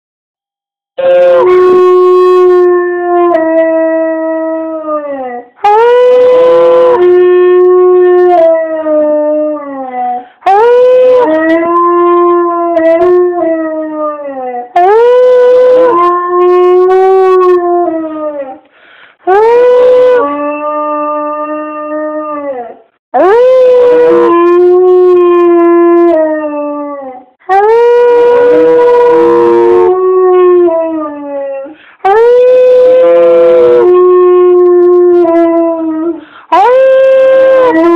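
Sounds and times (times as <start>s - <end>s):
dog howling: 1.0s - 18.6s, 19.3s - 37.9s.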